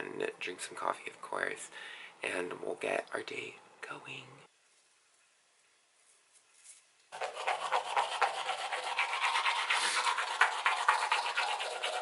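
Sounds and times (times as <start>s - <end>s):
toothbrush scrubbing teeth: 7.1s - 12.0s.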